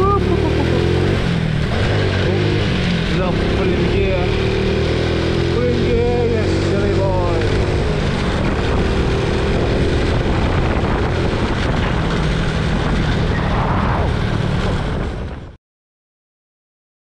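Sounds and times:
motorbike engine running: 0:00.0 - 0:13.4
wind noise: 0:07.3 - 0:15.6.

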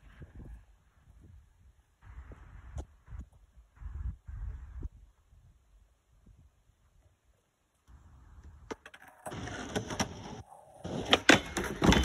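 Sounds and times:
skateboard wheels rolling on concrete: 0:00.0 - 0:12.0
skateboard clacking down: 0:08.7 - 0:12.0.

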